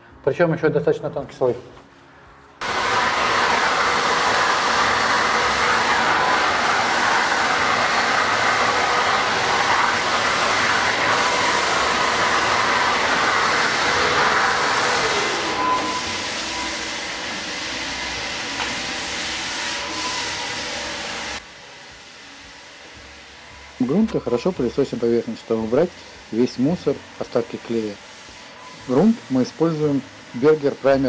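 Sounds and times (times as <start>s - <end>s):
vacuum cleaner running: 2.6s - 31.0s.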